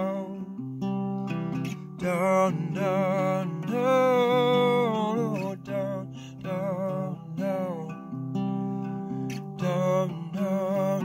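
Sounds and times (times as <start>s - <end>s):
acoustic guitar strumming: 0.0s - 11.0s
wordless vocal melody: 0.0s - 11.0s.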